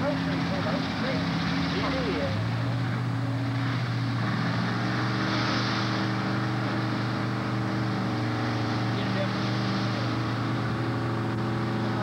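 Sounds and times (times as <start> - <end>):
race car engines idling: 0.0 - 5.3.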